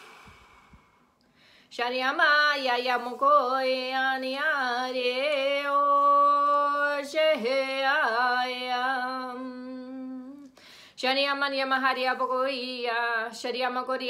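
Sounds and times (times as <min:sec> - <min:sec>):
quick breath: 0:00.0 - 0:01.7, 0:10.6 - 0:11.0
woman chanting: 0:01.7 - 0:10.4, 0:11.0 - 0:14.0.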